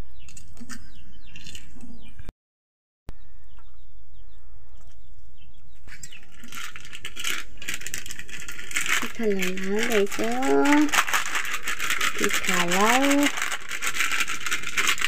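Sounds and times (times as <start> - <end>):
bird chirps: 0.0 - 2.3, 3.1 - 6.3
low hum: 3.1 - 15.0.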